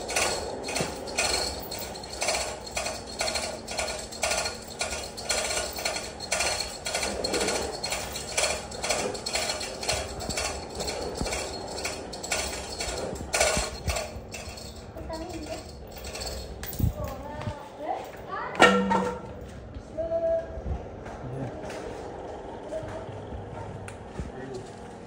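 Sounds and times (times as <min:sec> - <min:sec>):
chain hoist ratchet clicks: 0:00.0 - 0:17.2.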